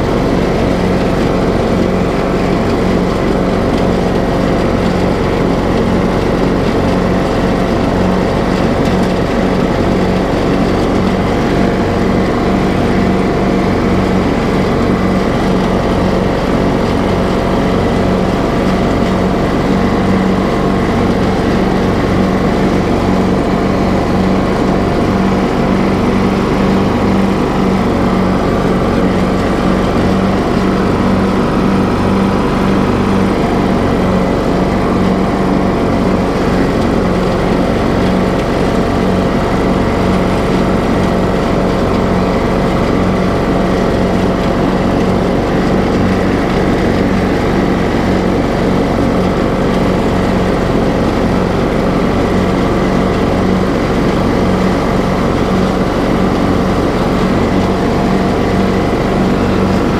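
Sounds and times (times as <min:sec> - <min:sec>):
riding lawn mower engine: 0:00.0 - 0:59.9.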